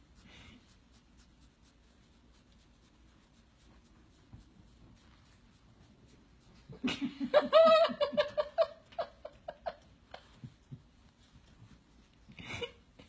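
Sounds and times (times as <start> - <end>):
person laughing heartily: 6.7 - 10.6, 12.2 - 13.0.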